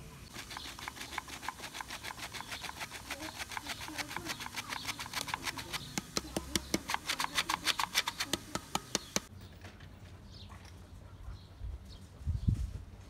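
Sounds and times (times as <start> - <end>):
flour sifter clicking: 0.3 - 9.3.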